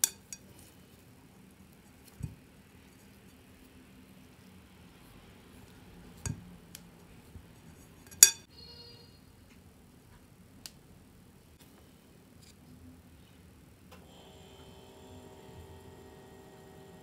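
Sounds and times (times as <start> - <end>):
metal spoons clinking in ceramic bowl: 8.1 - 8.5.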